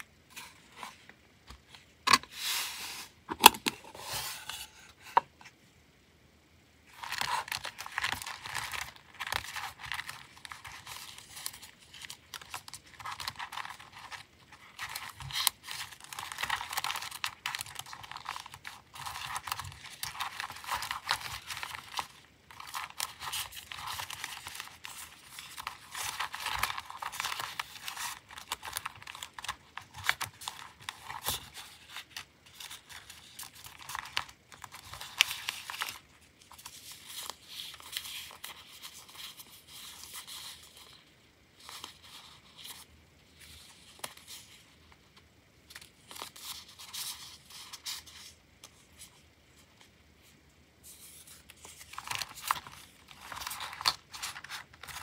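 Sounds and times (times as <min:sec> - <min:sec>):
paper stickers rustling: 0:06.9 - 0:41.0, 0:45.7 - 0:55.0.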